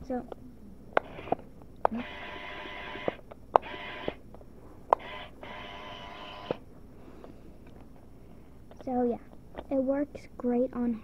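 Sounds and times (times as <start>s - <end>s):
toy motor and gears whirring: 1.0s - 4.2s, 5.0s - 6.6s.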